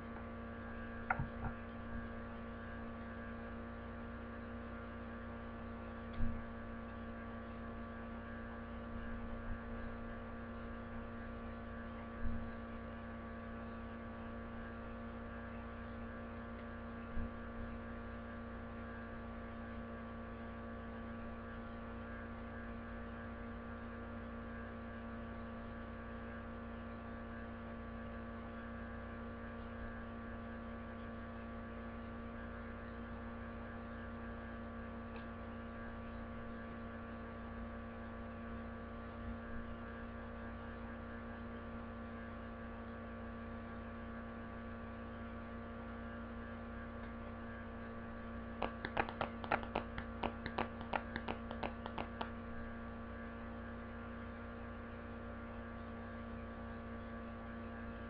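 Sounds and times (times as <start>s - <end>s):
electrical mains hum: 0.0s - 58.0s
light clicks and taps: 48.6s - 52.3s.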